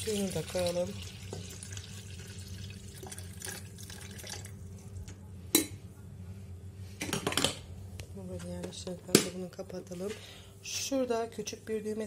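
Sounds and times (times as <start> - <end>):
water pouring and splashing: 0.0 - 4.5.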